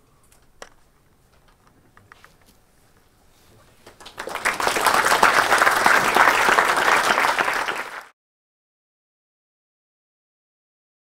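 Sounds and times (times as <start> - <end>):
audience applauding: 3.8 - 8.1.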